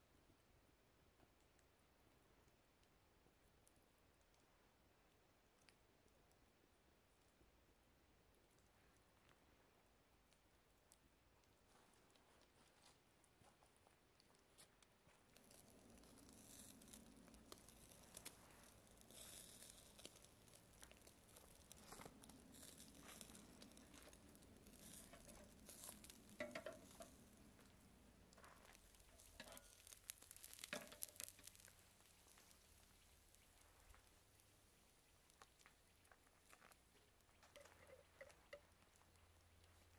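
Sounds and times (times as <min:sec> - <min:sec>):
charcoal crackling and popping: 0:10.3 - 0:39.9
meat sizzling over charcoal: 0:15.4 - 0:38.7.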